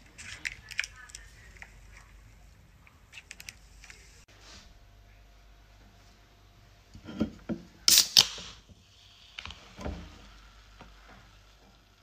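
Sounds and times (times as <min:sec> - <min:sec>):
soda can cracking open and fizzing: 0:07.9 - 0:08.6.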